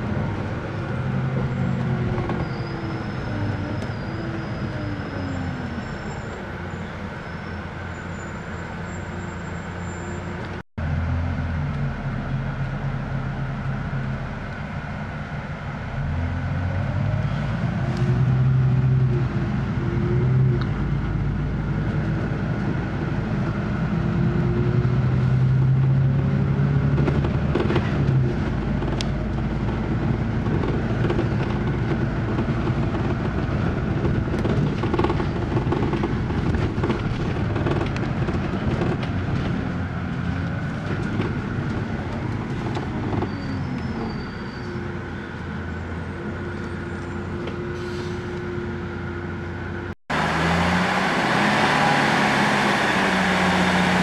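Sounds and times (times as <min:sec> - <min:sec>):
bus engine drone: 0:00.0 - 0:54.0
bus body rattles and knocks: 0:26.7 - 0:44.4.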